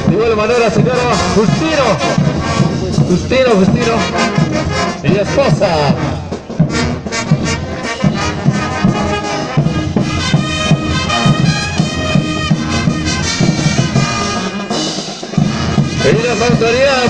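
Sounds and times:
bass drum beat: 0.0s - 17.0s
brass band playing dance tune: 0.0s - 17.0s.

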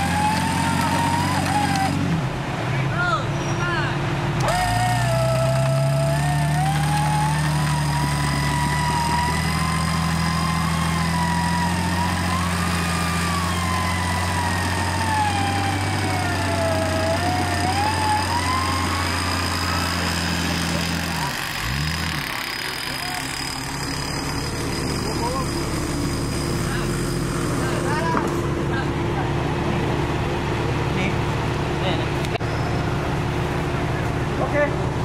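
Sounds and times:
car engine running: 0.0s - 2.6s, 4.0s - 35.0s
winch whine: 4.4s - 26.8s.

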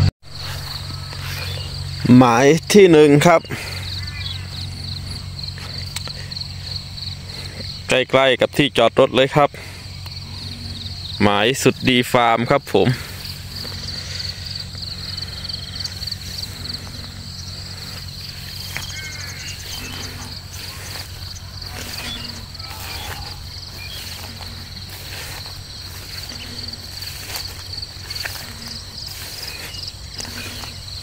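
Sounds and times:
crickets trilling: 0.2s - 31.0s
short low calls: 9.4s - 31.0s.

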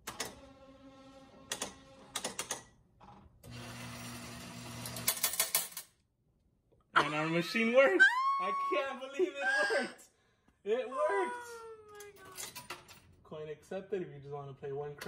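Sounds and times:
slot machine reels whirring: 3.5s - 5.8s.

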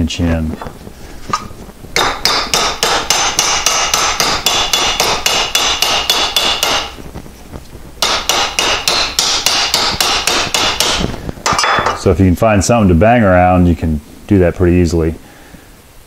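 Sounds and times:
hammer striking steel: 1.4s - 7.0s, 8.0s - 12.0s.

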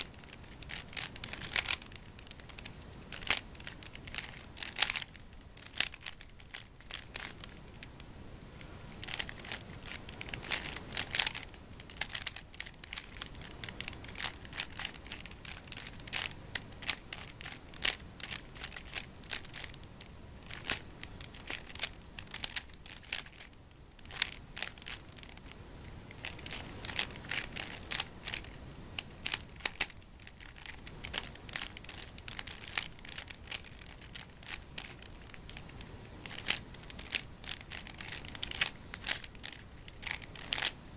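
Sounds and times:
puzzle cube clicking and scraping: 0.0s - 40.8s.

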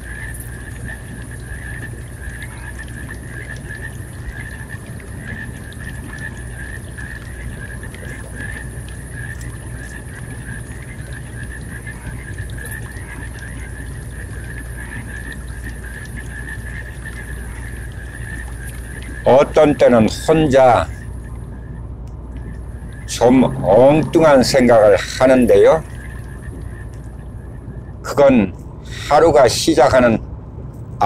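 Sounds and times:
high wavering whine: 0.0s - 31.0s.

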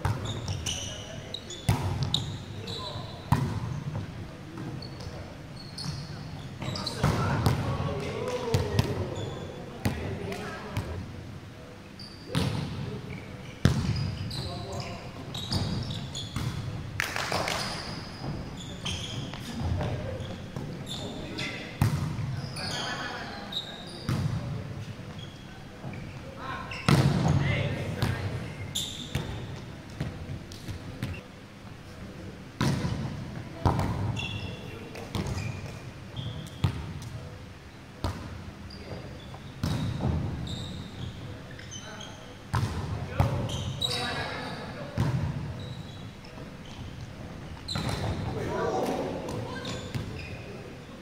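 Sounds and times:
volleyball smacks in hall: 26.8s - 27.4s, 32.6s - 34.1s.

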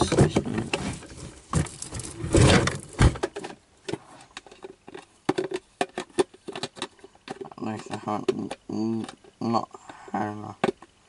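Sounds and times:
plastic rustling scrape: 0.5s - 3.2s
plastic clicks and taps: 3.4s - 9.3s, 10.6s - 10.9s.

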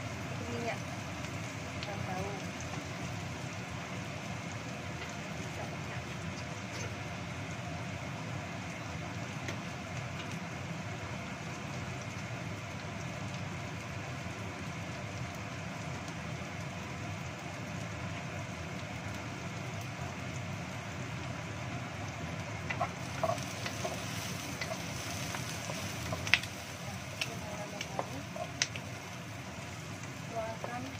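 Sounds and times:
shallots sizzling in oil: 0.0s - 30.9s
wooden spatula scraping a pan: 22.7s - 26.6s.

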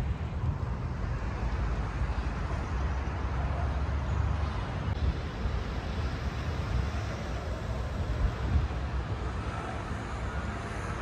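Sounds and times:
constant hiss: 0.0s - 11.0s
wind buffeting microphone: 0.0s - 11.0s
steady low rumble: 4.4s - 11.0s.

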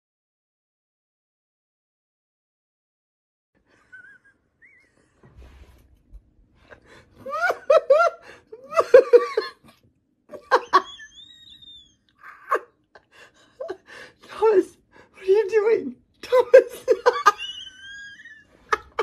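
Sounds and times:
person laughing hard: 7.2s - 12.8s, 16.7s - 19.0s.

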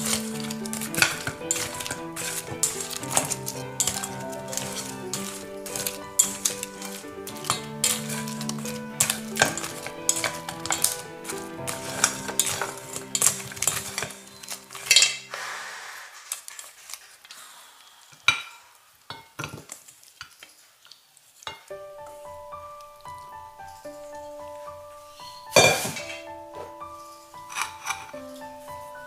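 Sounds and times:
chopsticks clicking on metal bowl: 0.0s - 15.2s.

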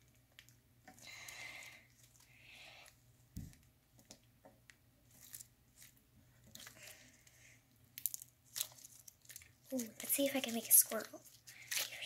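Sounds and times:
slime squishing with sticky pops: 7.8s - 12.0s.

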